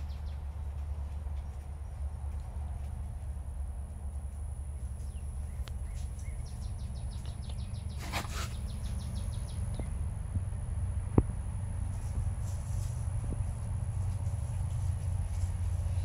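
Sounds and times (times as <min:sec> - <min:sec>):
bird chirping: 0:00.0 - 0:00.6, 0:04.7 - 0:10.0
constant high-pitched whine: 0:00.0 - 0:16.0
steady low rumble: 0:00.0 - 0:16.0.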